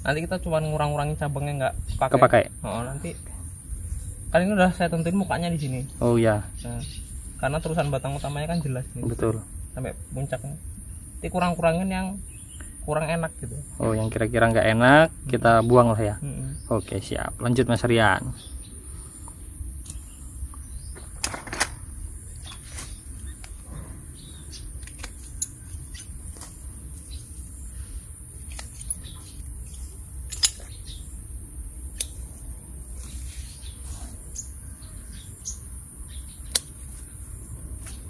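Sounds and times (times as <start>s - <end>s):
high drone of insects: 0.0s - 38.0s
pruning shears snipping branches: 24.8s - 26.6s, 28.4s - 30.8s, 31.9s - 32.4s, 36.5s - 37.1s.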